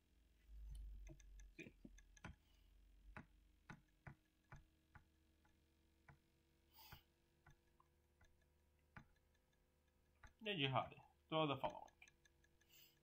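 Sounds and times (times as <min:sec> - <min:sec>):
computer mouse clicks: 0:00.6 - 0:06.2, 0:06.8 - 0:10.4, 0:11.6 - 0:13.0.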